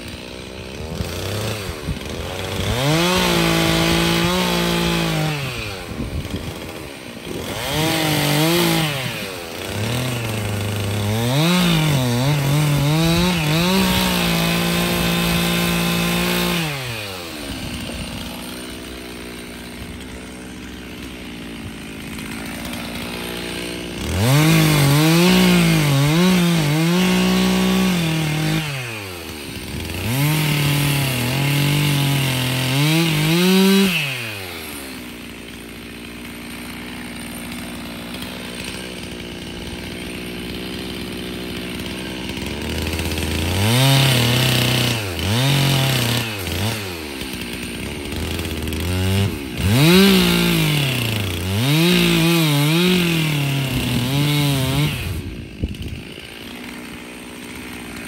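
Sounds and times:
chainsaw cutting wood: 0:00.0 - 0:58.0
chainsaw idling: 0:00.0 - 0:58.0.

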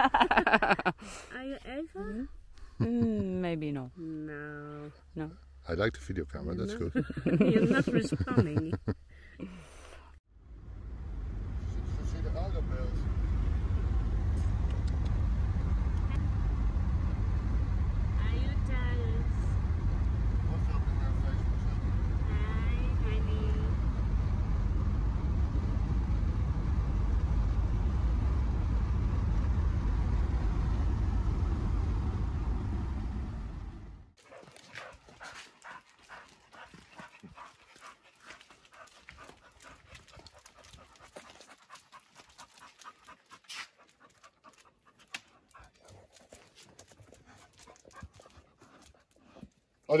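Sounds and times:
steady low rumble: 0:10.3 - 0:34.2
dog panting: 0:34.2 - 0:49.6.

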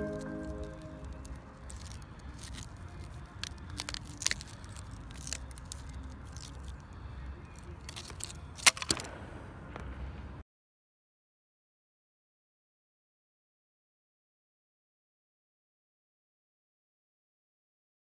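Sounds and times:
burnt plastic snapping and crunching: 0:00.7 - 0:06.9, 0:07.6 - 0:09.1.

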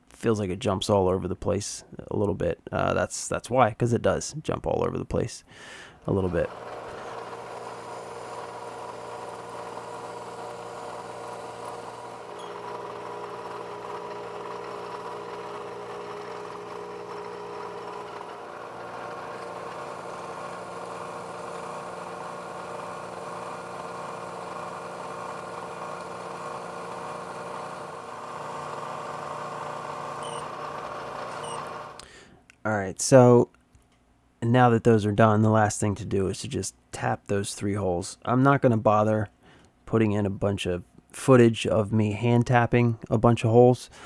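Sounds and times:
drill boring into steel: 0:05.9 - 0:32.0
milling machine spindle hum and whine: 0:06.4 - 0:32.0.

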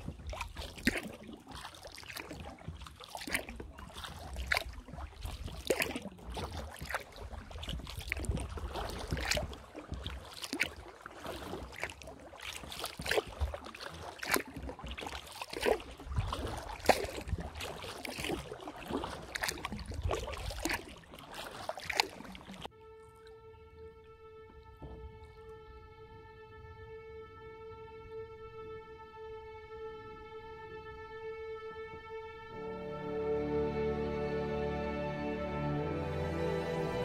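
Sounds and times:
water dripping: 0:00.0 - 0:26.5
paddle splashing in water: 0:00.0 - 0:34.6
violin music: 0:22.7 - 0:37.0.

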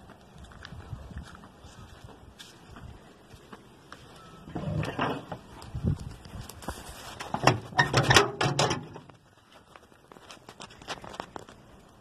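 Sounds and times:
faint fire crackles: 0:00.0 - 0:07.4, 0:09.0 - 0:12.0
metal furnace door clanking open: 0:07.4 - 0:09.0.

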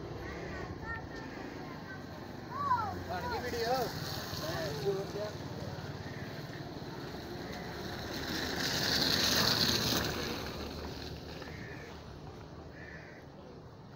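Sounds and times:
car driving past on wet dirt: 0:07.2 - 0:11.8.

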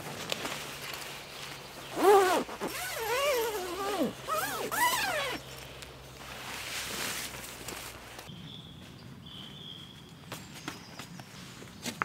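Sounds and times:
jacket swishing: 0:01.9 - 0:05.4.

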